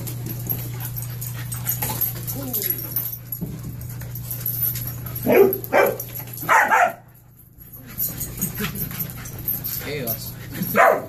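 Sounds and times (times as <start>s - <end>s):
steady low hum: 0.0s - 11.0s
puppies barking: 4.1s - 7.4s, 8.2s - 11.0s.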